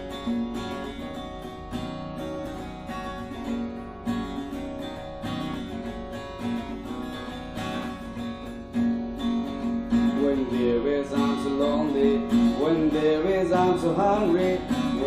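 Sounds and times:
acoustic guitar strumming chords: 0.0 - 15.0.

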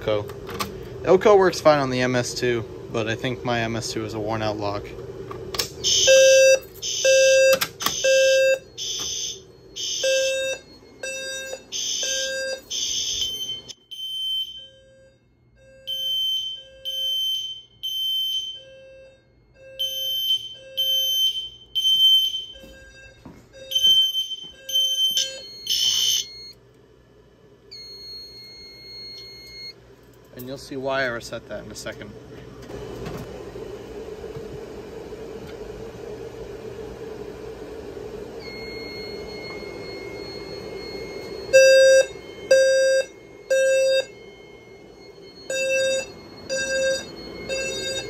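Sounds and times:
alarm horn blasts: 5.8 - 26.3, 38.4 - 48.0
fire alarm tone: 5.8 - 26.6, 27.7 - 29.8, 38.3 - 48.0
steady high beep: 38.4 - 48.0.

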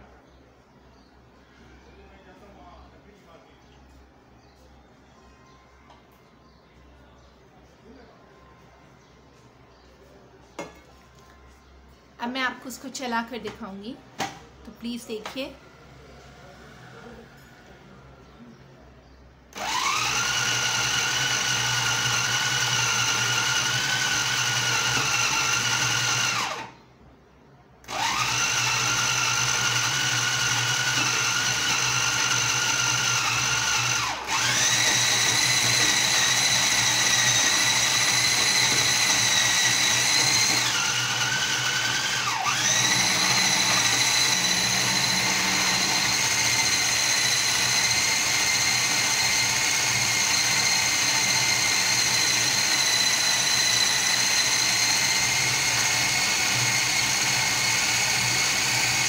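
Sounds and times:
food processor motor whining: 19.5 - 26.8, 27.8 - 59.0.

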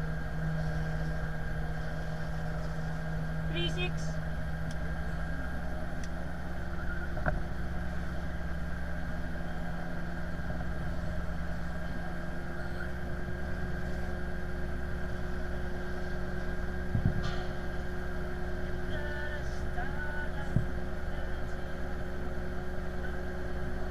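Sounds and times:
aircraft and tug engine drone: 0.0 - 23.9.

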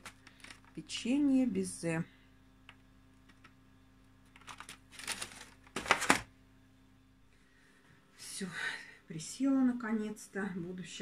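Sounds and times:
plastic container crinkling: 0.0 - 0.8, 4.3 - 6.3
sharp plastic crackle: 0.0 - 0.8, 4.2 - 6.3.

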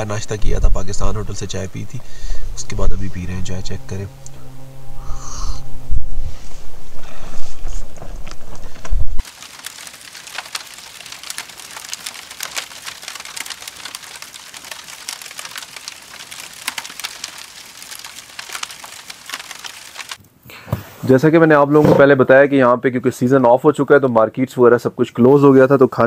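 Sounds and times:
dense fine crackling: 0.0 - 20.2.

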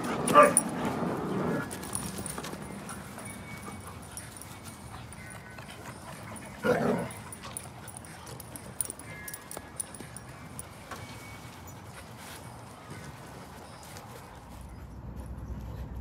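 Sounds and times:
dog barking: 0.3 - 0.6.

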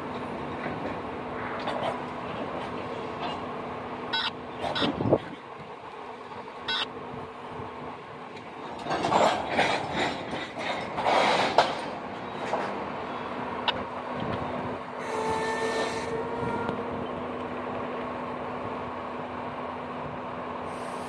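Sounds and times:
train wheels clattering over rails: 0.0 - 3.7, 8.3 - 17.8
brake squeal with hiss: 15.0 - 16.7, 20.7 - 21.0.

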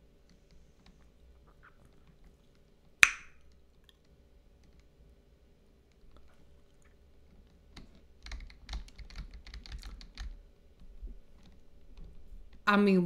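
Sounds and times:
keyboard clicks and taps: 7.8 - 10.4.

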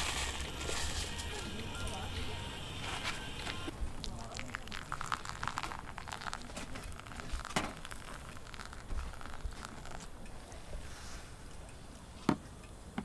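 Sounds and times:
coffee grounds fizzing: 0.0 - 2.3, 3.9 - 10.8
water pouring onto coffee: 3.9 - 10.1.

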